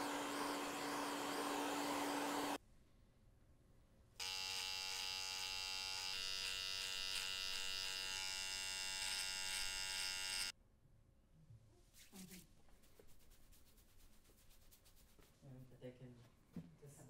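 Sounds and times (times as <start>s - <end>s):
electric hair trimmer buzzing: 0.0s - 2.6s, 4.2s - 10.5s.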